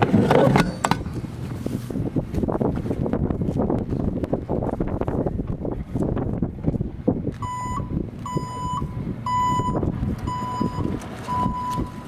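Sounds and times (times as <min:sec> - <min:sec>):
wind noise on microphone: 0:00.0 - 0:12.0
reversing beeper: 0:07.4 - 0:12.0.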